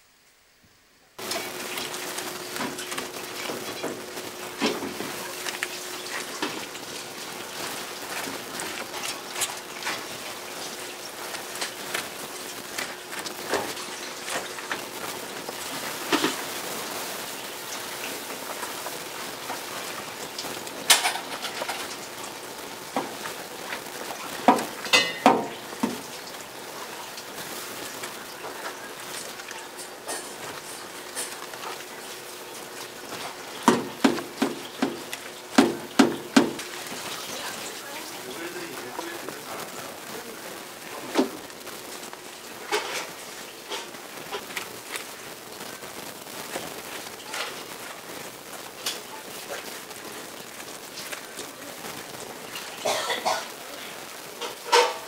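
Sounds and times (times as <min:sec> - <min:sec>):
steady hiss: 0:00.0 - 0:55.0
fish knocking in a steel tray: 0:33.6 - 0:36.7.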